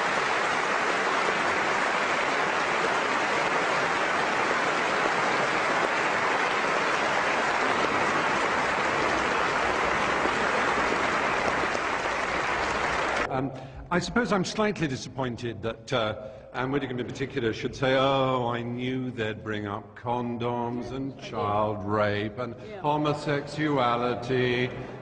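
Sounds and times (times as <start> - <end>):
large audience applauding: 0.0 - 13.3.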